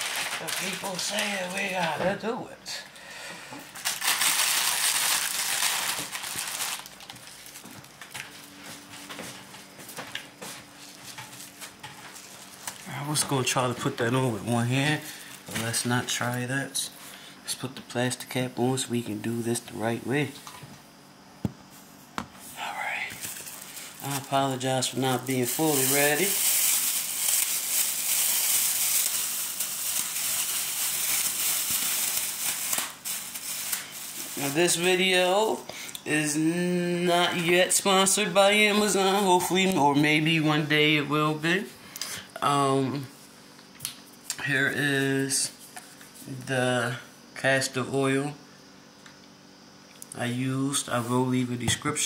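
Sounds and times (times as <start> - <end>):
plastic cap crinkling: 0.0 - 2.0, 3.7 - 8.3, 23.2 - 34.4.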